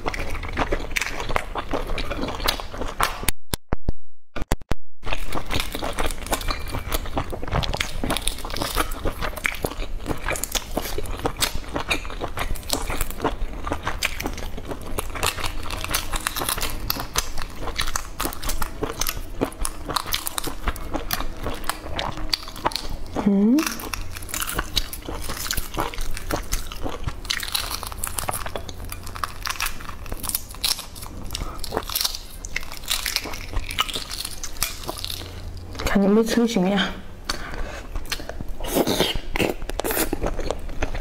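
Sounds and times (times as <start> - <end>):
chewing: 0.0 - 3.3, 5.1 - 35.9, 37.2 - 41.0
egg shells cracking and peeling: 23.6 - 35.7.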